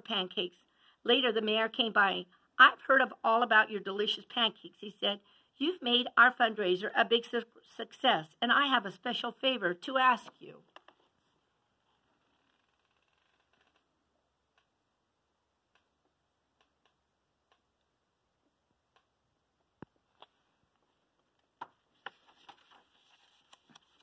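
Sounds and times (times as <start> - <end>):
pages turning: 20.0 - 24.0.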